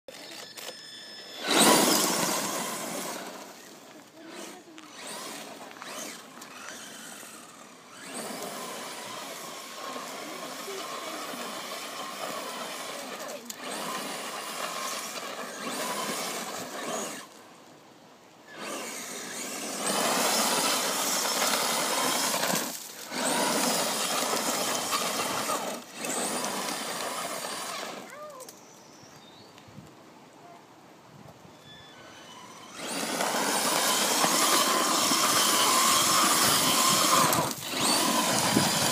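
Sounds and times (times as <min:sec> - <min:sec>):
electric rc truck motor: 0:00.1 - 0:17.4, 0:18.4 - 0:28.7, 0:31.6 - 0:38.9
tyres spraying grit: 0:01.3 - 0:07.1, 0:08.0 - 0:17.2, 0:18.6 - 0:28.1, 0:32.7 - 0:38.9.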